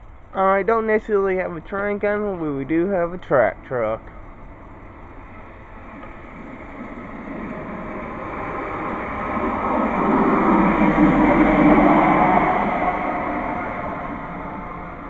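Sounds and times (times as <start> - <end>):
rail truck running on track: 0.0 - 15.0.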